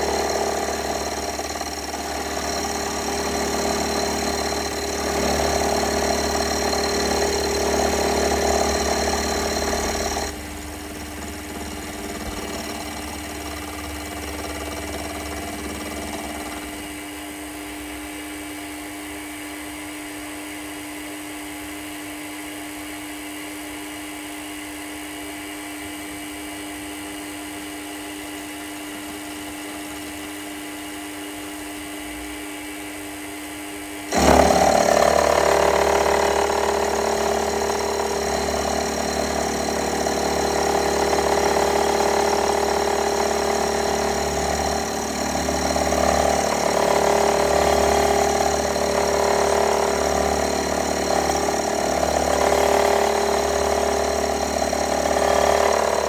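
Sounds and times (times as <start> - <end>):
machine tool whining: 0.0 - 16.9, 34.1 - 56.0.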